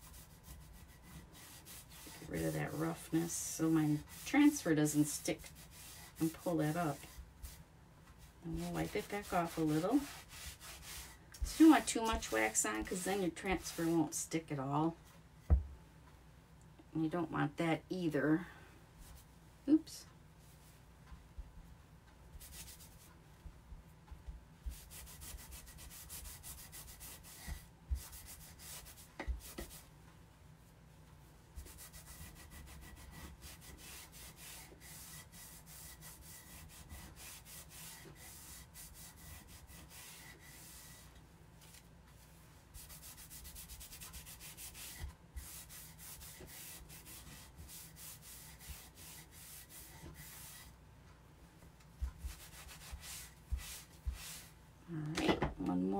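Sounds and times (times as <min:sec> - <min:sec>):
cloth rubbing on wood: 0:00.0 - 0:07.6, 0:08.2 - 0:14.2, 0:31.5 - 0:50.8, 0:52.0 - 0:54.6.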